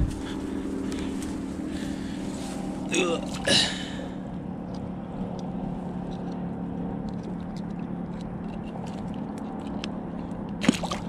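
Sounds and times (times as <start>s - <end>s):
steady low hum: 0.0s - 11.0s
light water sounds: 2.9s - 4.0s, 10.6s - 11.0s.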